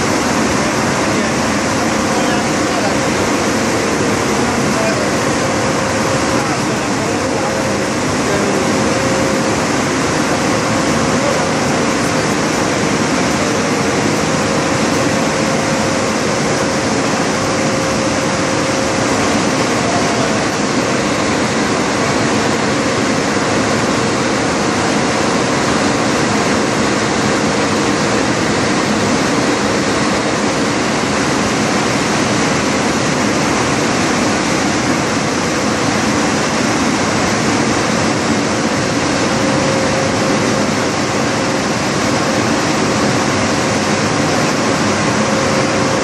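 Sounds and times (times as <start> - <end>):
printing press whirring: 0.0 - 46.0.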